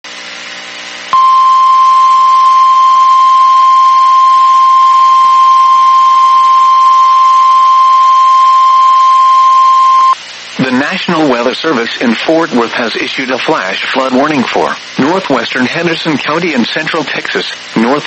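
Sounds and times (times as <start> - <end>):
low hum: 1.2 - 10.2
steady alarm tone: 1.2 - 10.2.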